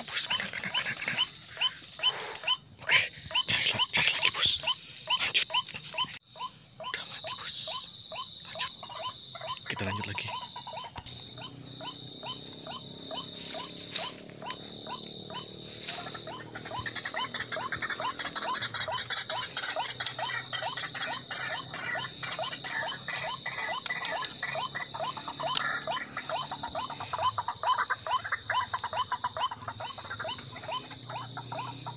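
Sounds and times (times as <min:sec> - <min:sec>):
frogs croaking: 0:00.0 - 0:31.9
high-pitched insect trill: 0:00.0 - 0:31.9.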